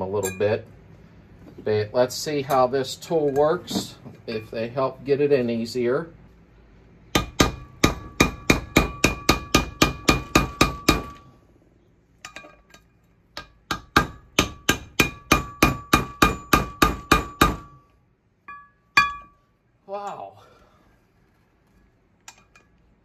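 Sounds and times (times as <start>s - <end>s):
hammer striking metal: 7.1s - 11.3s, 12.3s - 17.8s, 18.5s - 19.4s.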